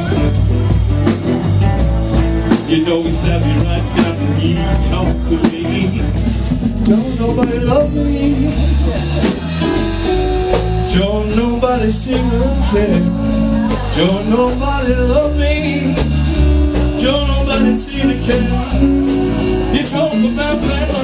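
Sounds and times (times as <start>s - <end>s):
drum kit steady beat: 0.0s - 21.0s
electric and acoustic guitars: 0.0s - 21.0s
man singing into microphone: 2.5s - 9.4s, 10.8s - 16.2s, 16.8s - 19.0s, 19.6s - 21.0s.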